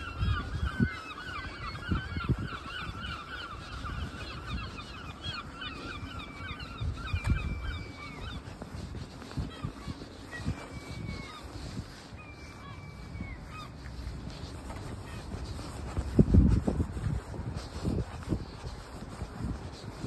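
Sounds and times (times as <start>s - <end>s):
geese honking: 0.0s - 14.0s
footsteps on pavement: 0.0s - 20.0s.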